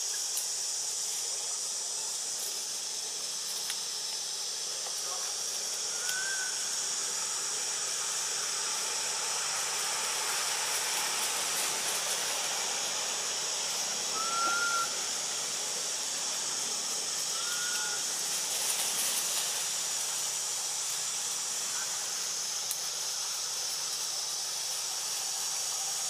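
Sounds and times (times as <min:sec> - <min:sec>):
forest ambience hiss: 0:00.0 - 0:26.0
short whistled calls: 0:05.9 - 0:06.8, 0:14.0 - 0:15.2, 0:17.3 - 0:18.1.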